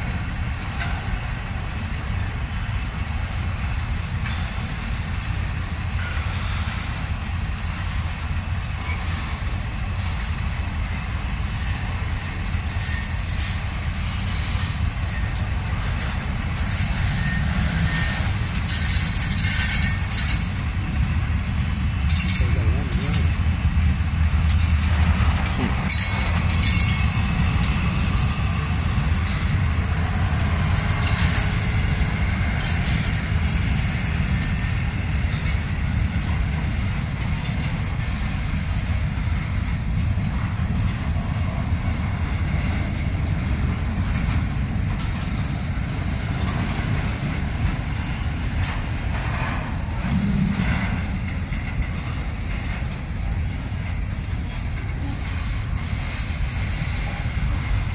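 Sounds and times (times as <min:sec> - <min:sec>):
freight cars rumbling: 0:00.0 - 0:57.9
high squeal: 0:11.4 - 0:20.5, 0:23.2 - 0:35.1.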